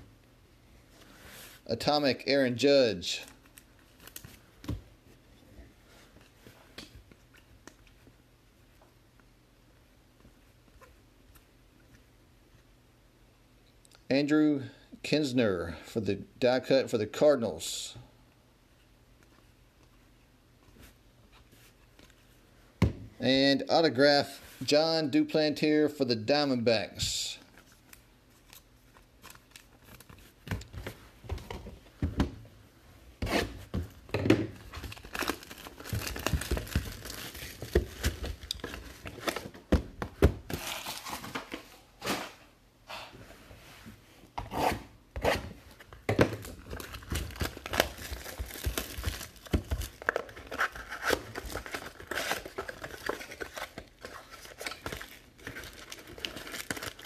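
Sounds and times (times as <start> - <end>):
plastic shrink-wrap tearing: 34.8 - 38.7, 54.2 - 57.0.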